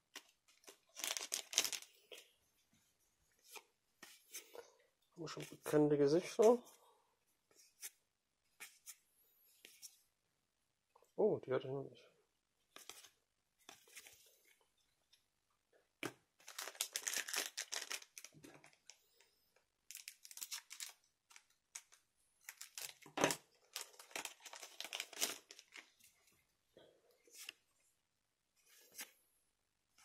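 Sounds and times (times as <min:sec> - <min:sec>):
cards and foil wrappers crinkling: 0:00.5 - 0:01.9, 0:16.4 - 0:19.0, 0:19.9 - 0:25.9.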